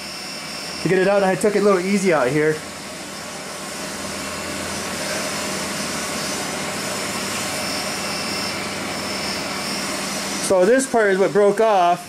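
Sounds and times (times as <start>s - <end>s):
machine droning with low hum: 0.0s - 12.0s.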